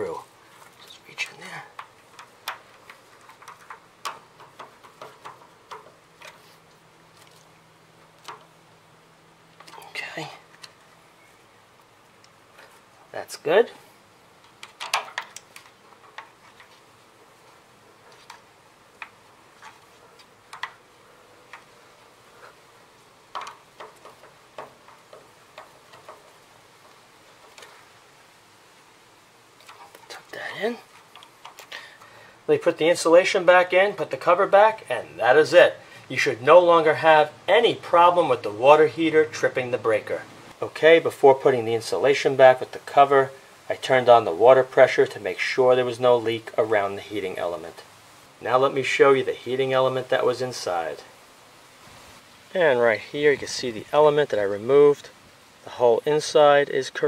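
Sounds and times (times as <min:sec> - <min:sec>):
wire clicking under terminal screw: 0:01.7 - 0:06.4, 0:23.3 - 0:27.7.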